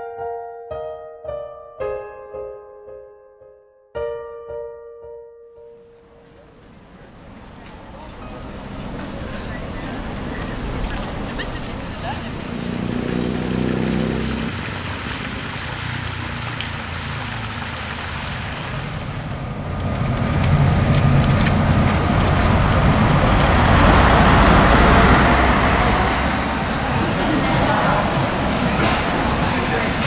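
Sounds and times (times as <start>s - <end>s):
cars passing on road: 5.9s - 30.0s
traffic background hum: 6.0s - 30.0s.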